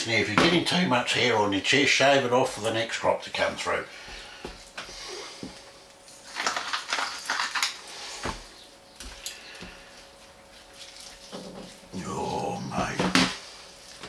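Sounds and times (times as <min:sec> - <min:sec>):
faint steady hum: 0:00.0 - 0:14.0
spice grinder grinding: 0:06.2 - 0:08.1.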